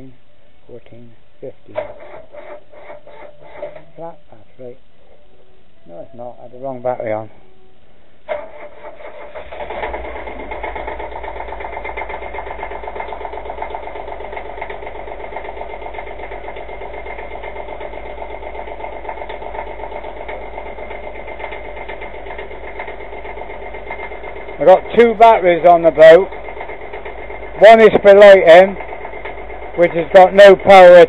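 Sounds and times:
boat engine idling: 1.7 - 31.0.

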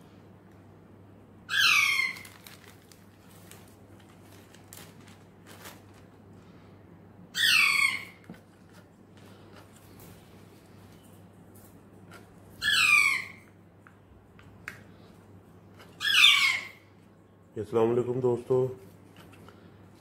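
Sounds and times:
low steady hum: 0.0 - 20.0
parrot screeching: 1.5 - 2.5, 7.3 - 8.2, 12.5 - 13.6, 16.0 - 16.9.

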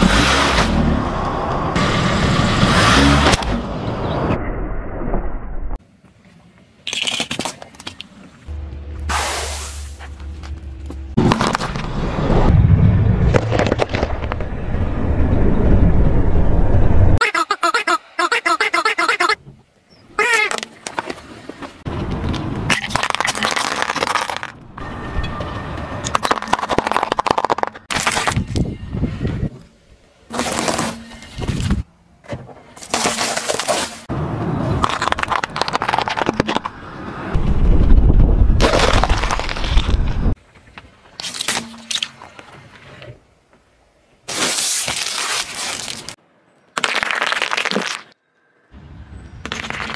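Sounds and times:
carrots snapping and crunching: 6.8 - 8.1, 22.4 - 24.6, 38.6 - 40.2, 44.3 - 46.2
hard candy cracking under tyre: 22.3 - 24.6, 26.0 - 28.6, 34.8 - 36.8, 44.3 - 48.2.

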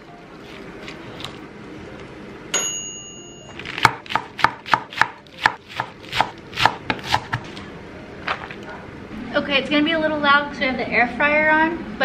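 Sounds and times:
knife chopping on wooden board: 3.8 - 7.5.

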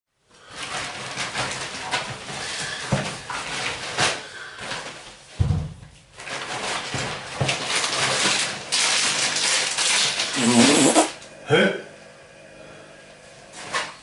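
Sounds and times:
packaging rustling: 0.4 - 5.2, 6.2 - 11.2
heavy dull thump: 5.4 - 6.0.

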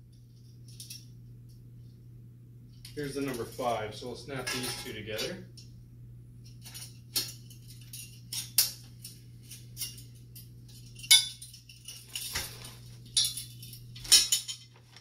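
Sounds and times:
metal frame parts clinking: 6.5 - 15.0.

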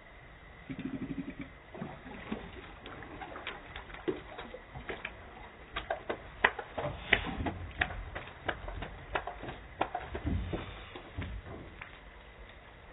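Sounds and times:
dog paws tapping on wood: 3.0 - 12.6
low thuds: 4.8 - 12.2.

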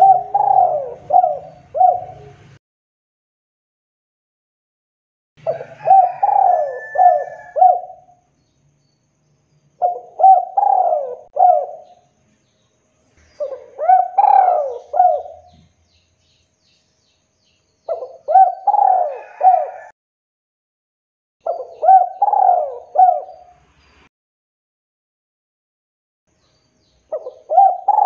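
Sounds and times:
dove cooing: 0.0 - 2.6, 5.4 - 8.2, 9.8 - 12.0, 13.4 - 15.7, 17.9 - 19.9, 21.4 - 23.6, 27.1 - 28.0.

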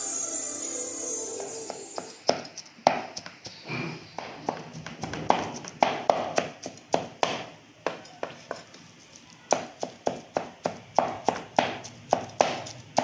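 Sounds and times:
knife chopping on wooden board: 2.3 - 3.3, 4.2 - 8.6, 9.5 - 13.0.

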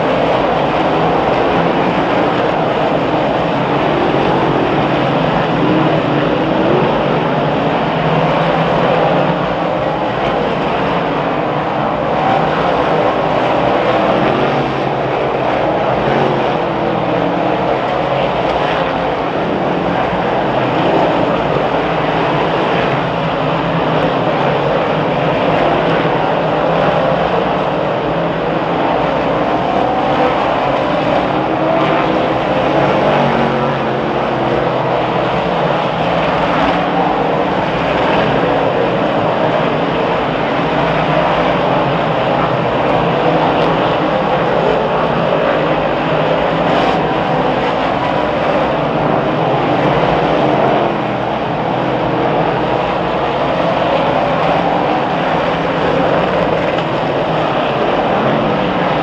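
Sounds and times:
race car engines running: 0.0 - 59.0.

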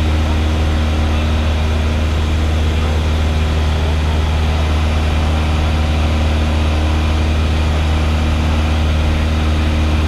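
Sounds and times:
propeller airplane engine drone: 0.0 - 10.0.

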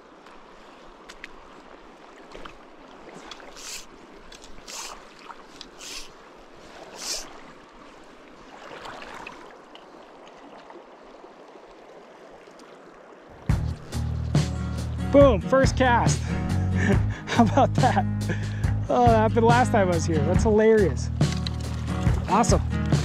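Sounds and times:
river water flowing over riffles: 0.0 - 16.3, 20.6 - 23.0
short hissing swishes: 3.5 - 3.9, 4.6 - 5.0, 5.8 - 6.2, 6.8 - 7.4.

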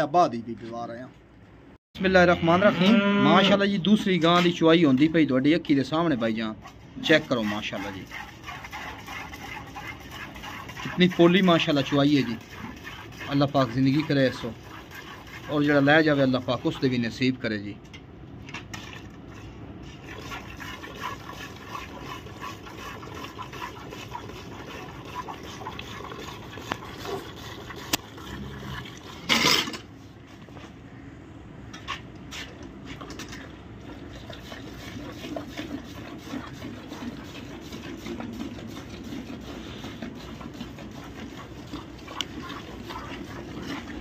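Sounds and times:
milk squirting into a bucket: 18.8 - 29.3, 32.9 - 44.0.

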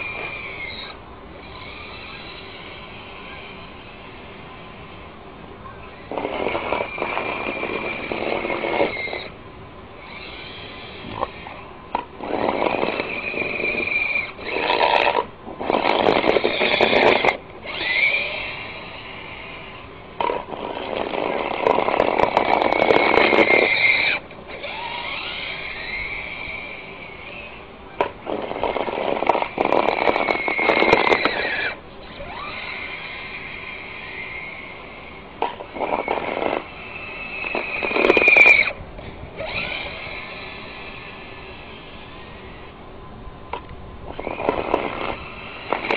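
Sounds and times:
toy car motor and gears whining: 0.0 - 42.9, 43.5 - 45.9
plow blade pushing snow: 6.1 - 9.4, 12.0 - 42.6.

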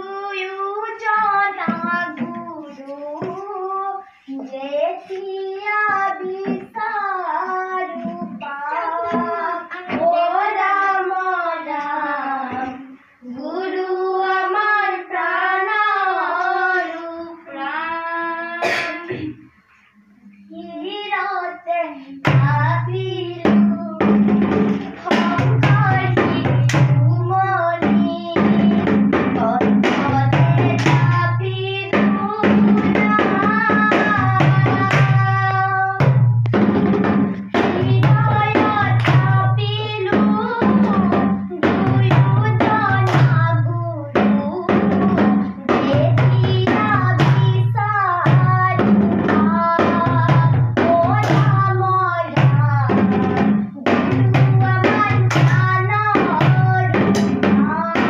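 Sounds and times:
children singing: 0.0 - 58.0
drum beating: 1.0 - 4.0, 5.4 - 7.0, 7.6 - 10.6, 22.2 - 58.0.

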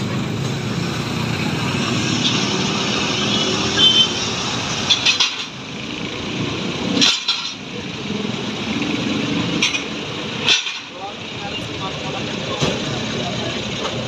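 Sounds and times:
engines running: 0.0 - 14.0
metal clanks on asphalt: 4.8 - 5.6, 6.9 - 7.8, 9.5 - 11.2.

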